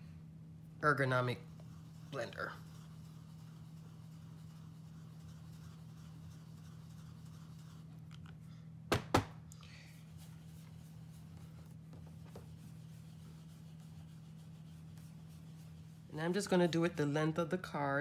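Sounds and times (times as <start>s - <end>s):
low steady hum: 0.0s - 18.0s
brush rubbing over cardstock: 0.9s - 8.1s, 10.0s - 17.1s.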